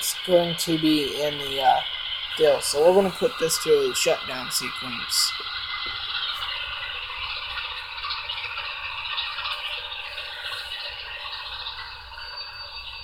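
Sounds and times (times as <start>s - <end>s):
diesel engine sound from small speaker: 0.0s - 5.4s.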